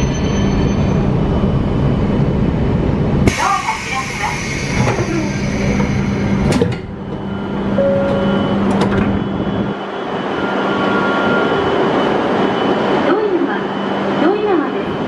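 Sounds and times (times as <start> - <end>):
train steady hum: 0.0 - 15.0
short electronic tones: 7.8 - 8.7.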